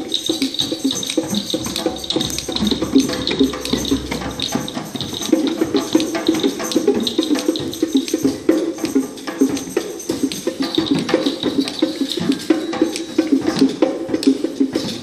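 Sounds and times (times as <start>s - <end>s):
shakers rattling: 0.2s - 5.2s
djembes tapping: 0.2s - 15.0s.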